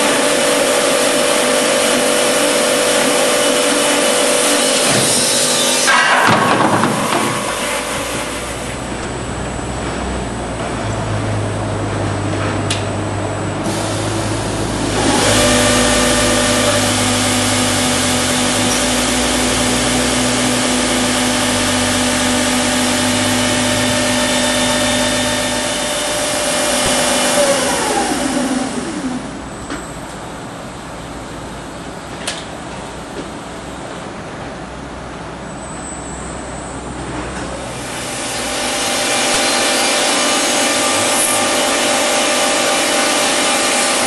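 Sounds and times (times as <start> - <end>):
machinery humming: 0.0 - 44.0
motor whining: 13.6 - 29.5.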